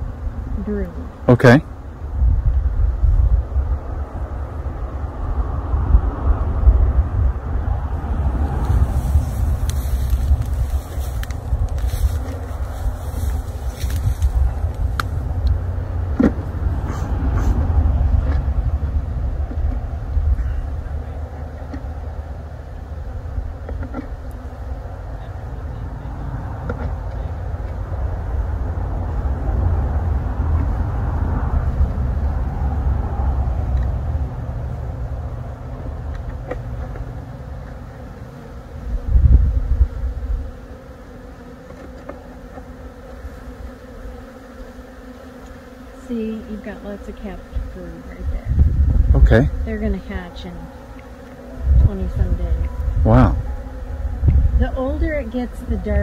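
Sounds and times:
bees buzzing: 0.0s - 56.0s
wind buffeting microphone: 2.0s - 22.0s, 25.8s - 37.2s, 38.8s - 40.6s, 47.1s - 56.0s.

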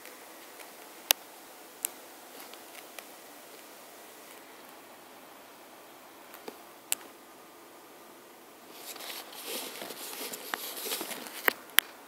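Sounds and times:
rustling and scraping: 8.7s - 11.6s.

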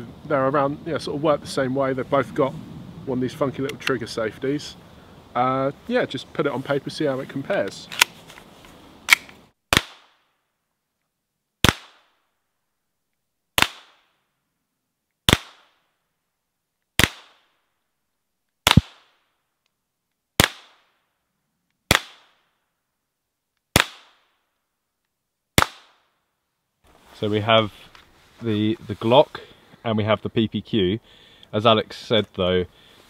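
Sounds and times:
pistol shots: 9.1s - 10.2s, 15.3s - 15.7s, 18.7s - 19.1s, 20.4s - 20.8s, 21.9s - 22.4s, 23.8s - 24.2s.

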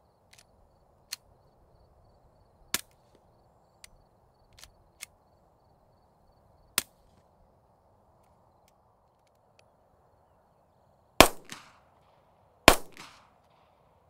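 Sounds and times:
suppressed pistol shots: 11.2s - 13.3s.

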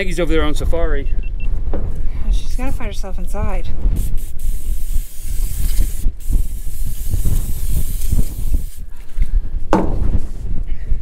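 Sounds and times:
aerosol spray hissing: 3.9s - 8.9s.

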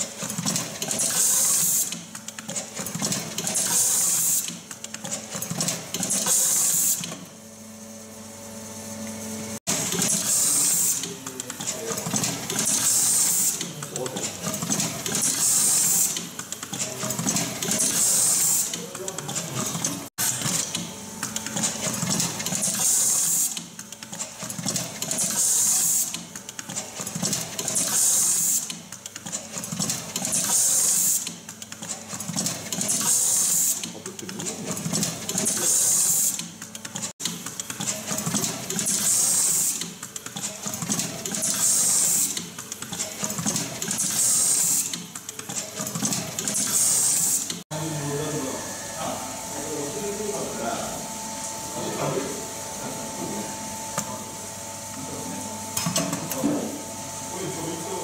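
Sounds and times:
machine mechanical clatter: 0.0s - 7.3s, 9.7s - 47.6s
pneumatic air hiss: 0.9s - 2.0s, 6.0s - 7.2s, 9.9s - 11.2s, 12.5s - 13.7s, 15.0s - 16.3s, 17.6s - 18.8s, 22.6s - 23.7s, 25.2s - 26.2s, 27.7s - 28.8s, 30.3s - 31.4s, 33.0s - 33.9s, 35.4s - 36.5s, 38.7s - 39.9s, 41.2s - 42.5s, 43.8s - 45.0s, 46.4s - 47.6s.

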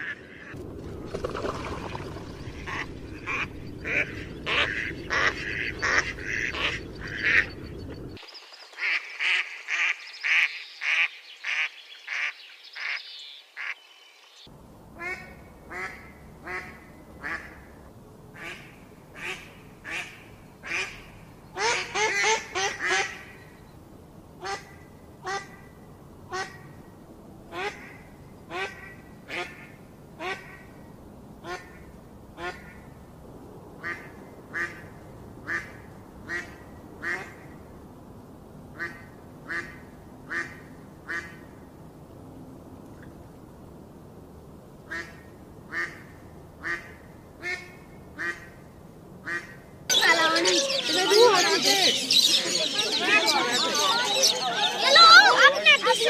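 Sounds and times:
ducks quacking: 1.5s - 8.2s, 18.4s - 23.4s, 49.2s - 56.0s.

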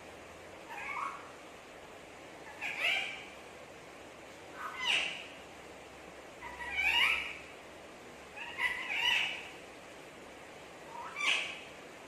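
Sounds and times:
parakeet calls sliding in pitch: 0.7s - 1.3s.

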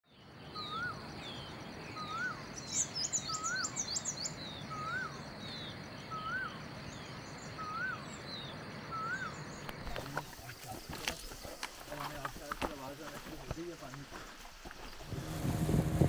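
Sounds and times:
background hiss: 0.1s - 16.0s
high bird chirps: 0.5s - 10.0s
rising and falling bird whistle: 6.1s - 6.6s, 8.9s - 9.4s.

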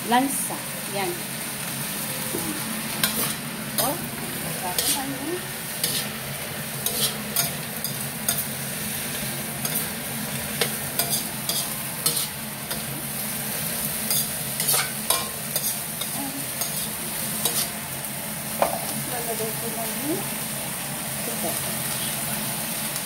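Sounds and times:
food sizzling: 0.0s - 23.0s
metal spatula scraping wok: 2.6s - 17.8s.

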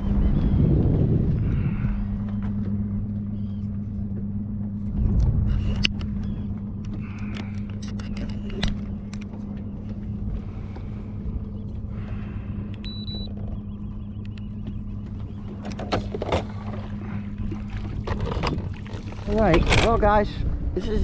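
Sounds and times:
boat motor humming: 0.0s - 21.0s
short electronic beep: 12.8s - 13.3s.

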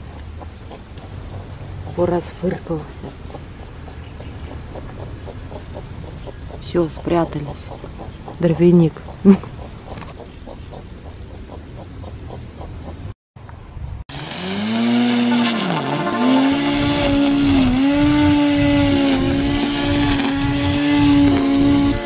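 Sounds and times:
string trimmer motor whining: 14.1s - 22.0s.

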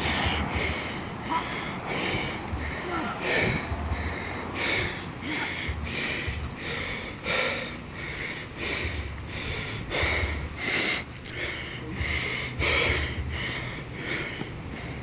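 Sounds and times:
person breathing hard: 0.0s - 15.0s.

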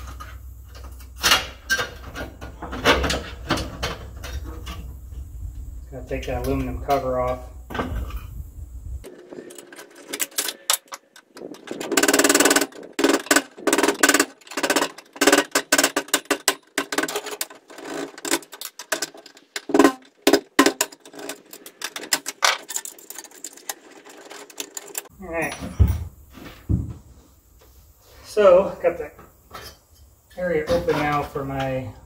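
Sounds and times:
metal clicks taps and rattles: 9.4s - 25.1s.

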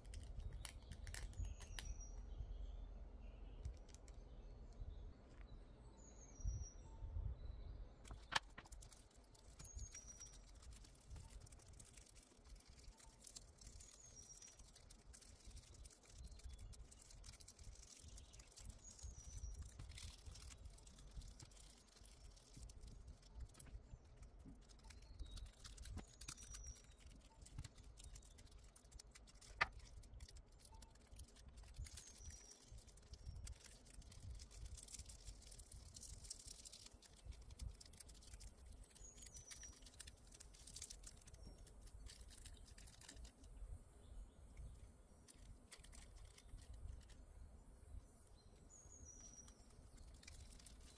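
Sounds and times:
foil rustling and crinkling: 0.0s - 1.8s, 8.1s - 43.4s, 49.0s - 50.9s
faint high chirps: 0.3s - 50.9s
gloved fingers rubbing foil: 8.1s - 43.3s, 49.0s - 50.9s.

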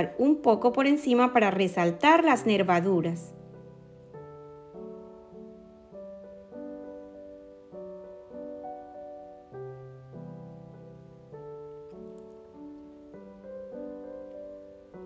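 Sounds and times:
calm piano chords: 0.0s - 15.0s.

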